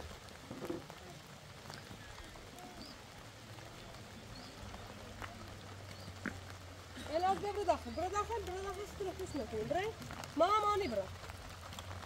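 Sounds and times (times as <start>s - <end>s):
light rain pattering: 0.0s - 12.0s.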